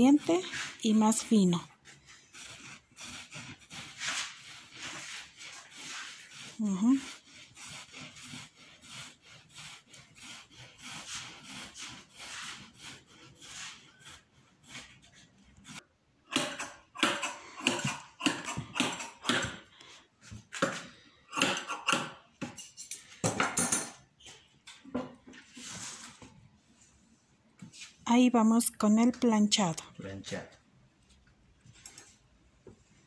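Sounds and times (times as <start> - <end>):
hand carder scraping cloth: 0.0 - 15.8.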